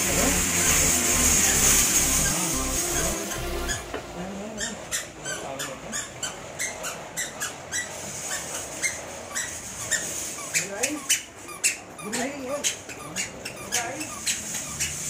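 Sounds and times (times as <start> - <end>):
shopping trolley squeaking: 0.0 - 15.0.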